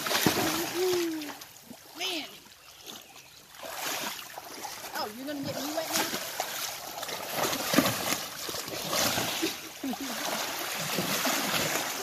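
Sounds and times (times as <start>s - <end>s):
horse splashing in water: 0.0s - 2.2s, 2.8s - 12.0s
creek running: 0.0s - 12.0s.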